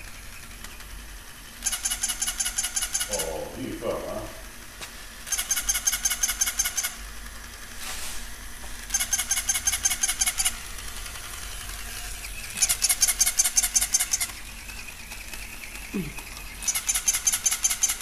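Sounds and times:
toy electronic squeaks: 1.6 - 3.5, 5.3 - 7.1, 8.9 - 10.7, 11.4 - 18.0.

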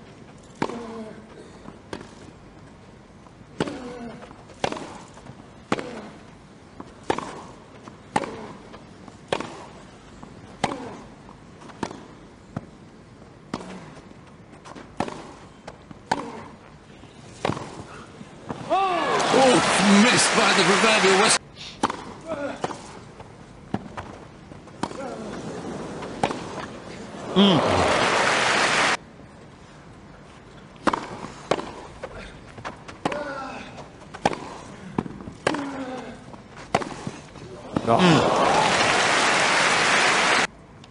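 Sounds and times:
racquets hitting tennis ball: 0.5 - 1.1, 3.5 - 12.8, 13.4 - 16.7, 17.3 - 26.8, 30.7 - 38.0
tennis rackets striking ball: 0.6 - 1.0, 4.6 - 6.2, 7.0 - 8.6, 9.3 - 9.7, 10.6 - 11.0, 11.7 - 12.7, 14.6 - 15.4, 16.0 - 16.5, 21.8 - 22.9, 24.7 - 25.2, 26.0 - 26.7, 30.8 - 31.9, 33.0 - 33.4, 34.1 - 35.8, 36.6 - 37.9
crowd applause: 18.9 - 21.4, 27.2 - 29.0, 37.9 - 40.5.

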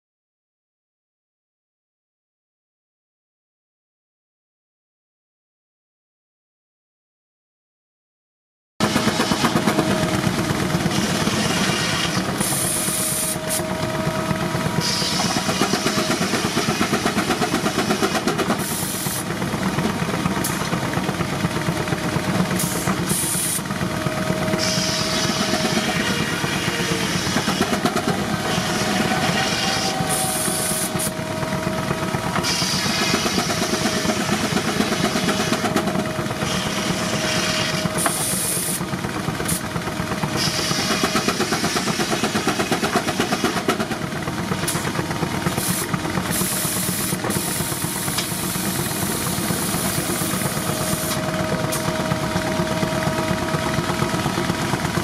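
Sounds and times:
sawmill machinery running: 8.8 - 55.0
steam engine exhaust chuffs: 8.8 - 55.0
steam hissing: 10.8 - 13.8, 14.8 - 19.4, 22.4 - 31.4, 32.4 - 35.5, 36.4 - 38.9, 40.4 - 43.6, 45.5 - 52.9.

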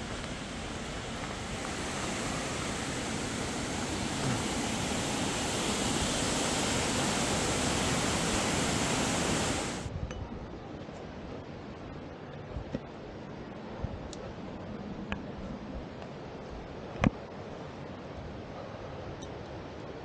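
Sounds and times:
waterfall roaring: 0.0 - 9.9.

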